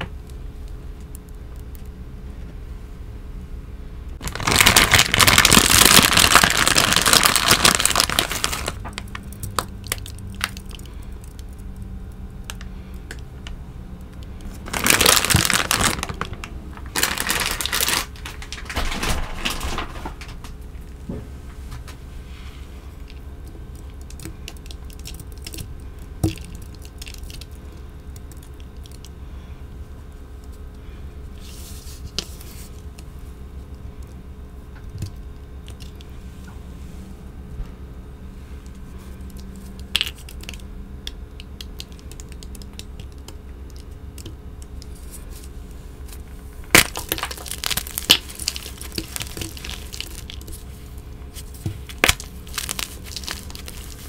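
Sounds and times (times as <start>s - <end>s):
plastic pouch crinkling: 4.2s - 10.9s, 14.4s - 18.8s, 46.1s - 54.0s.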